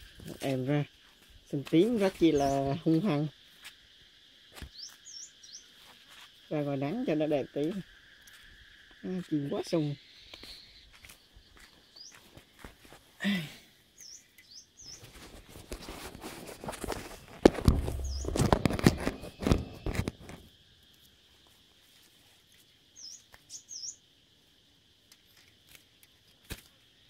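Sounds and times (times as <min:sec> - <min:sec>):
songbirds chirping: 0:00.1 - 0:16.0, 0:16.8 - 0:25.1
wire cages rustling and knocking: 0:15.1 - 0:20.2.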